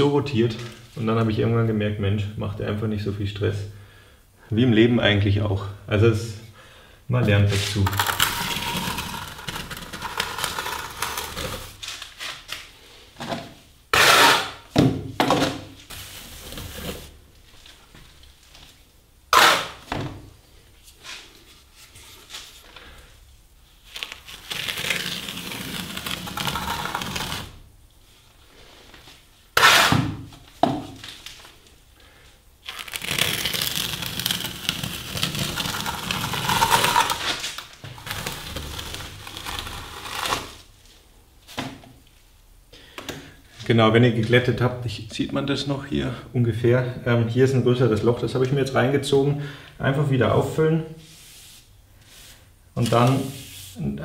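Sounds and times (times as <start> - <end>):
trowel scraping plaster: 7.5 - 11.9, 13.9 - 14.6, 19.3 - 19.8, 24.1 - 27.6, 29.6 - 30.2, 32.8 - 40.6.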